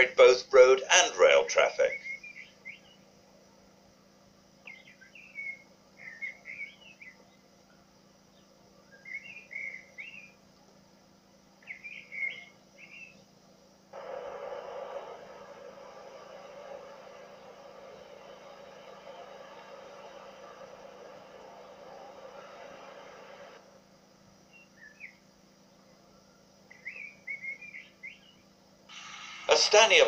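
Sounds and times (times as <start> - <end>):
small songbird singing: 1.8 - 3.1, 4.6 - 10.4, 11.6 - 13.4, 24.4 - 28.7.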